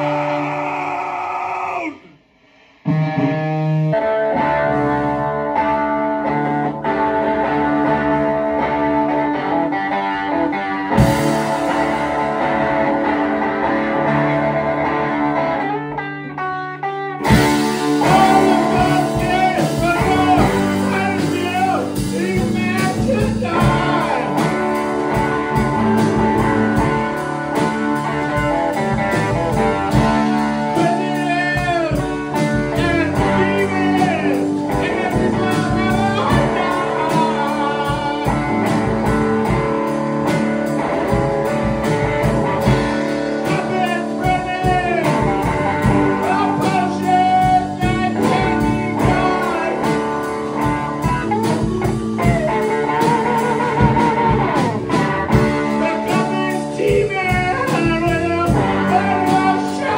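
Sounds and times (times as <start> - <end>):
rock band playing live: 0.0 - 1.9, 2.9 - 59.9
person singing: 0.0 - 59.9.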